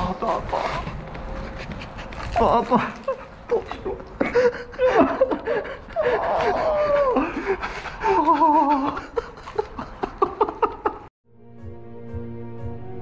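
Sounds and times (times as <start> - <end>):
man laughing: 2.6 - 11.1
man wailing: 5.9 - 7.4.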